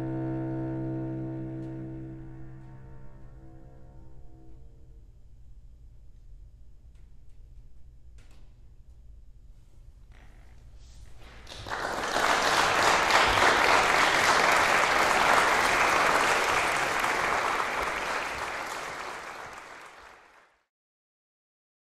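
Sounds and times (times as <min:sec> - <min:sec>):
audience applauding: 0:11.1 - 0:20.6.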